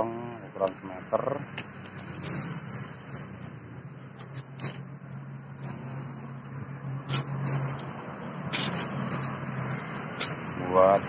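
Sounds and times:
tape measure clicking on metal: 8.5s - 10.4s.

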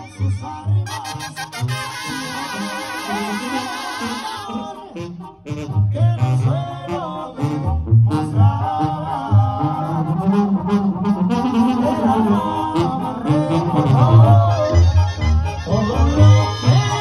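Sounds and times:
brass band playing: 0.8s - 17.0s
trombones: 0.8s - 17.0s
pulsing low bass line: 7.4s - 17.0s.

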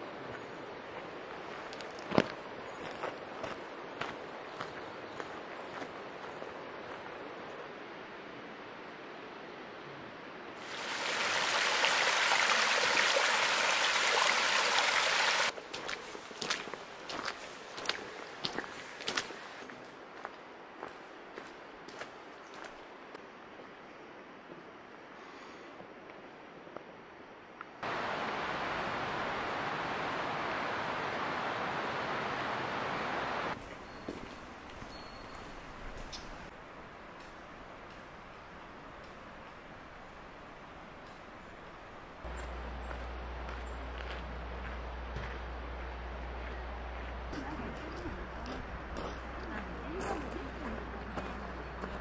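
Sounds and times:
faint steady hiss: 6.9s - 43.6s
rush of flowing water: 10.6s - 19.6s, 27.8s - 34.9s
mountain stream rushing: 10.6s - 19.7s, 27.8s - 52.0s.

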